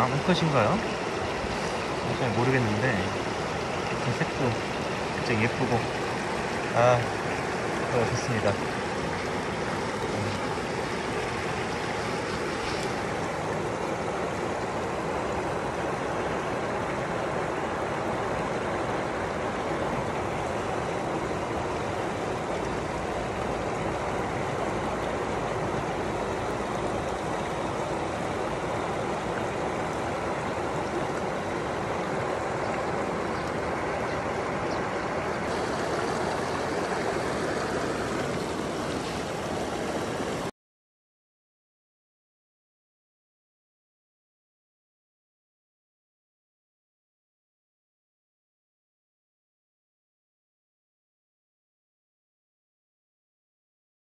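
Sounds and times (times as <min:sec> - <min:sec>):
stream rushing over rocks: 0:00.0 - 0:40.5.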